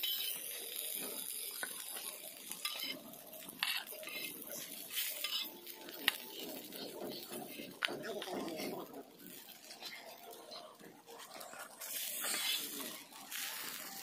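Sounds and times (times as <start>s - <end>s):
fish sizzling in oil: 0.0s - 14.0s
metal spatula scraping pan: 2.4s - 3.0s, 3.6s - 7.9s, 11.2s - 13.1s.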